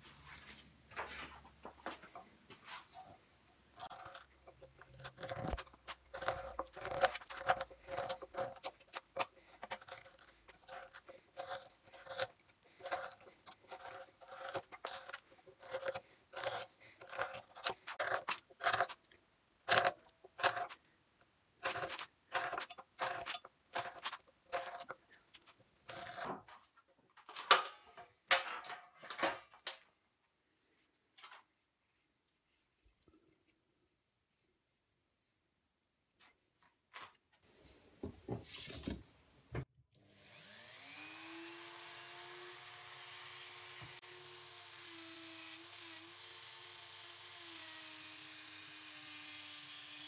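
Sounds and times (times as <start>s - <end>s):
gouge carving into wood: 3.8s - 20.8s, 21.6s - 26.3s.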